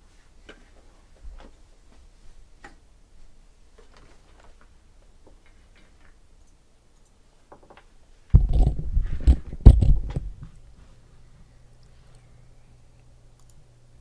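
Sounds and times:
faint clicks: 5.4s - 7.2s, 12.9s - 13.7s
heavy knocks and handling noise: 7.5s - 10.6s.

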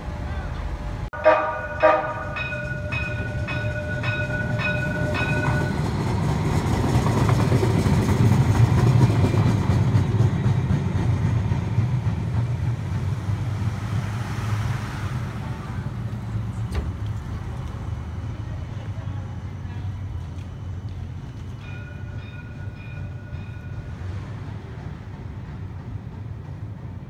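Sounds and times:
streetcar bell ringing: 0.1s - 6.6s, 20.8s - 24.8s.

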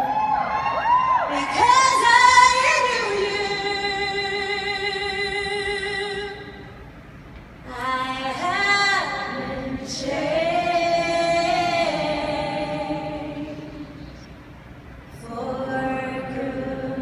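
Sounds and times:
crowd singing: 7.9s - 14.3s, 15.2s - 17.0s.

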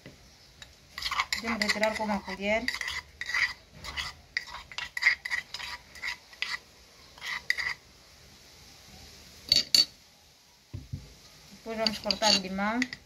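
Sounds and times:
metal spoon scraping wooden mortar: 0.6s - 7.8s, 11.8s - 13.0s
spoon clinks: 11.8s - 13.0s.

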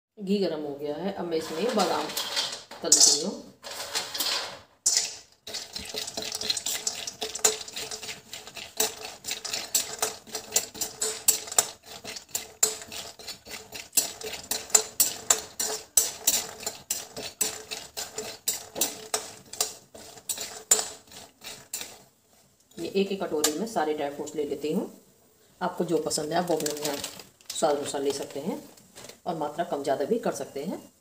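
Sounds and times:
metal spoon scraping in a pan: 1.3s - 24.4s.

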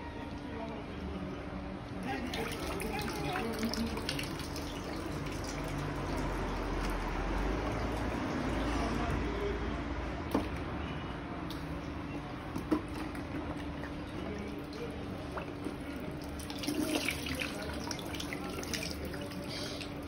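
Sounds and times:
water pouring and splashing: 2.1s - 9.2s, 12.5s - 20.0s.

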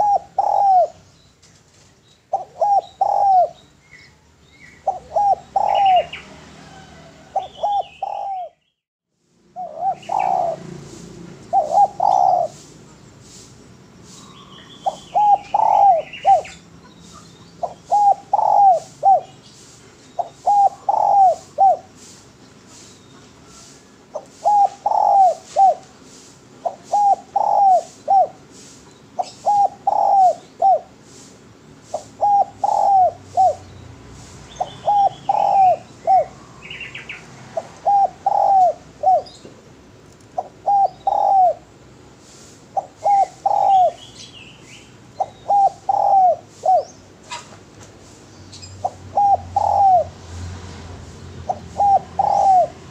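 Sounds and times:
dove cooing: 0.0s - 1.1s, 2.3s - 3.6s, 4.7s - 8.6s, 9.6s - 13.0s, 14.8s - 19.4s, 20.2s - 22.2s, 23.5s - 31.2s, 31.8s - 33.7s, 34.5s - 39.5s, 40.2s - 44.1s, 45.1s - 47.5s, 48.6s - 50.5s, 51.4s - 52.9s
faint bird chirps: 11.6s - 21.8s.

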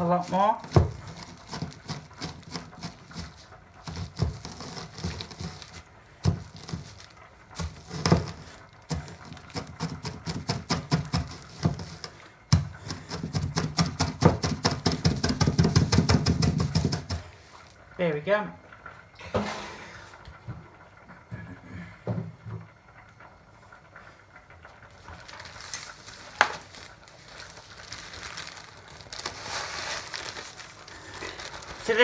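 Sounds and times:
dog kibble being crushed: 25.0s - 32.0s.

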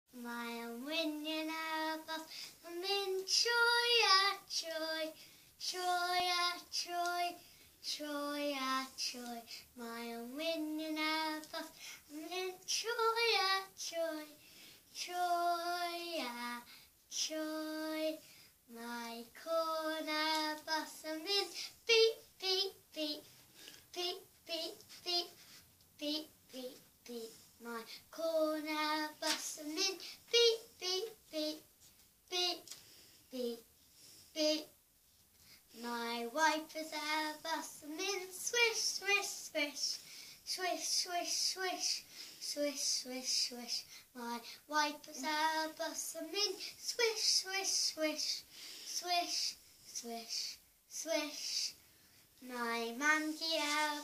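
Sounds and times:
girl singing unaccompanied: 0.1s - 54.0s.

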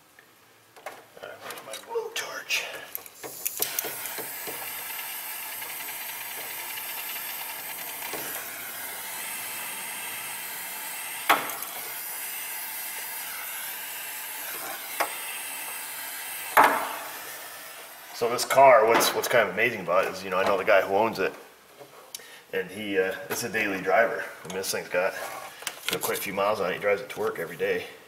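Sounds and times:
torch flame hissing: 2.9s - 18.5s.

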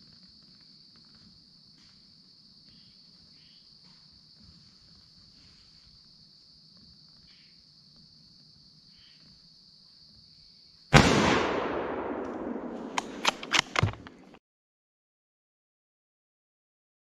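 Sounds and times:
high-pitched insect chorus: 0.0s - 11.0s.

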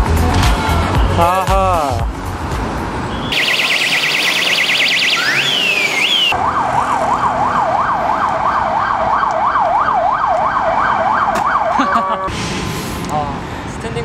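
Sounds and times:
electronic emergency siren: 3.3s - 12.3s.

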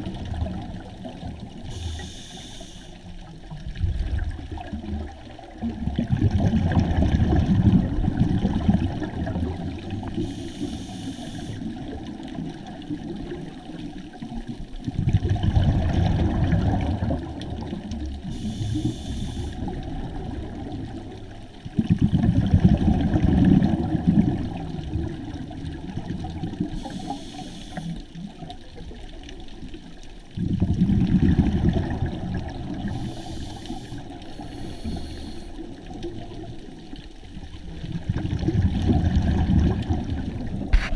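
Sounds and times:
exhaled bubbles underwater: 0.0s - 40.9s
regulator inhale hiss: 1.7s - 3.2s, 10.2s - 11.7s, 18.2s - 19.7s, 26.7s - 28.1s, 32.8s - 35.8s.

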